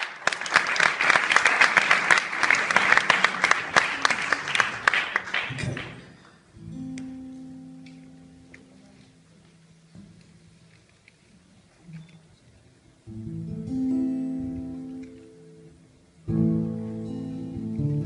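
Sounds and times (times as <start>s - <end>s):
audience applauding: 0.0s - 6.5s
guitar strum ringing: 6.5s - 9.2s, 13.1s - 18.0s.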